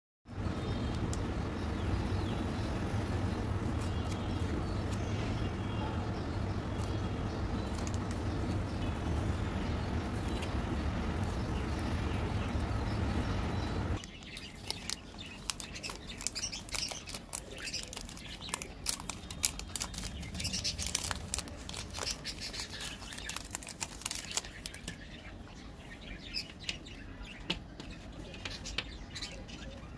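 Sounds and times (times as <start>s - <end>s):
steady low hum: 0.3s - 29.9s
wrapper crinkling and tearing: 14.0s - 25.0s.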